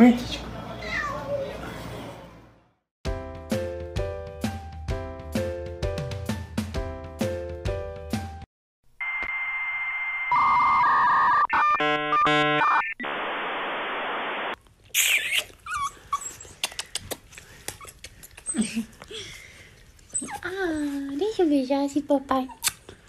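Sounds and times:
dial-up modem screeching: 0:10.0 - 0:14.6
small dog whimpering and yipping: 0:15.0 - 0:16.7, 0:20.1 - 0:21.0.

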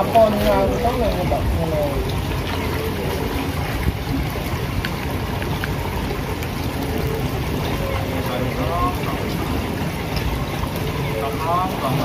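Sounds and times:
wind noise on microphone: 0:00.0 - 0:08.1.

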